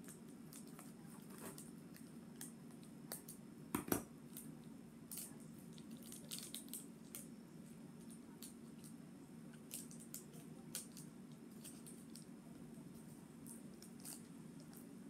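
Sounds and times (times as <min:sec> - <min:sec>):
plastic sachet crinkling: 0:05.1 - 0:07.3.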